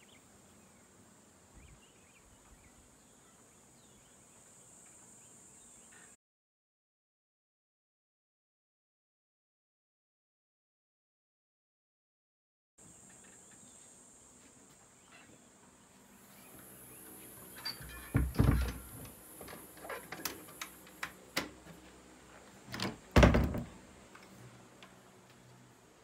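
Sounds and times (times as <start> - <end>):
wooden door heavy thuds: 17.8 - 19.1, 22.8 - 23.8.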